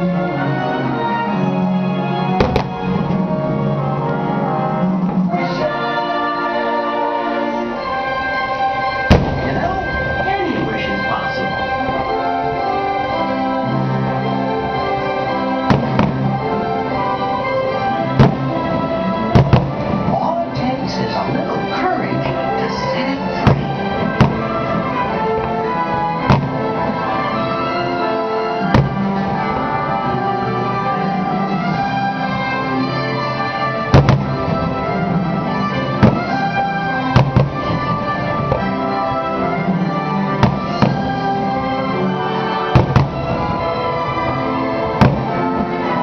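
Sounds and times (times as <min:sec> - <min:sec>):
orchestral music: 0:00.0 - 0:46.0
distant firework bursts: 0:02.4 - 0:03.4, 0:09.0 - 0:10.2, 0:14.8 - 0:20.1, 0:23.3 - 0:27.7, 0:33.4 - 0:45.6.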